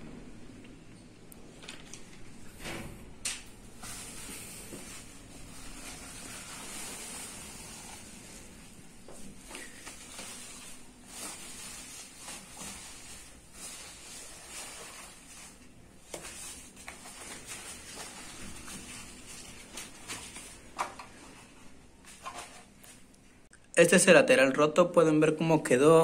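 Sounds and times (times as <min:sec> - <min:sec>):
plastic bag rustling: 0:03.6 - 0:23.1
bubble wrap crinkling: 0:03.7 - 0:23.1.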